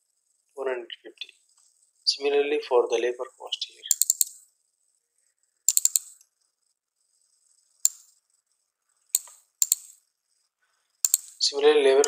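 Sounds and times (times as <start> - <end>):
computer keyboard keystrokes: 3.9 - 4.4, 5.7 - 6.2, 9.2 - 10.0, 11.0 - 11.4
mouse clicks: 3.9 - 4.5, 5.7 - 6.3, 7.8 - 8.2, 9.1 - 10.1, 11.0 - 11.4.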